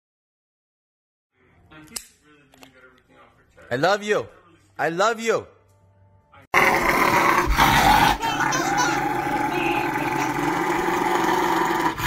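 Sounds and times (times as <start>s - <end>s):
dog growling: 6.6s - 12.0s.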